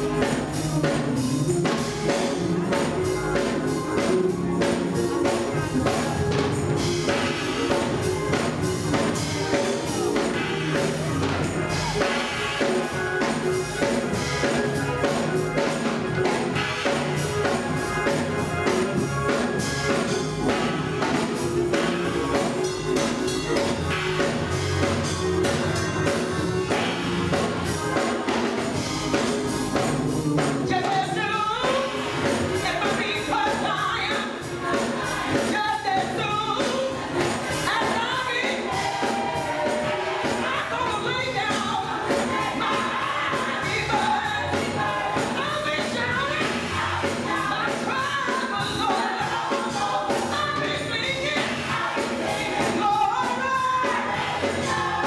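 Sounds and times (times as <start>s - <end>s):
gospel choir singing: 0.0s - 55.0s
keyboard accompaniment: 0.0s - 55.0s
percussion beat: 0.0s - 55.0s
lead singer's voice: 30.6s - 55.0s.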